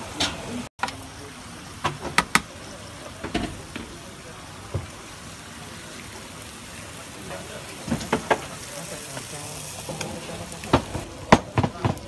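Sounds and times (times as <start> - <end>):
chicken sizzling on griddle: 0.0 - 12.0
sharp clicks and knocks: 1.8 - 2.5.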